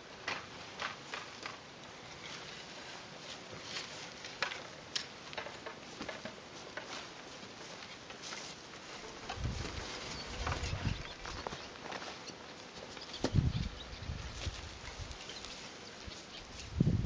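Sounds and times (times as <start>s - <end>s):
wooden easel and stool rattling: 3.6s - 7.1s, 7.7s - 13.5s
footsteps through dry grass: 5.2s - 17.0s.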